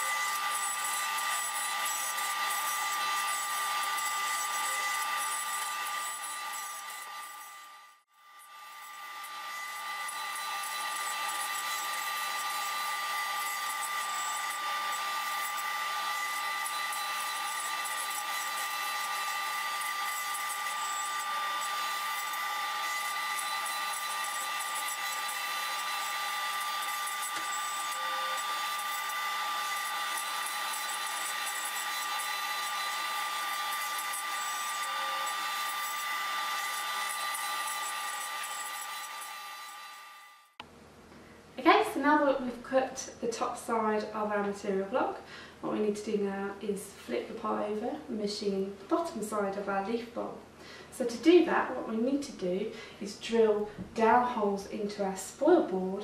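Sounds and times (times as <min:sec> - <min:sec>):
router spindle whining: 0:00.0 - 0:40.6.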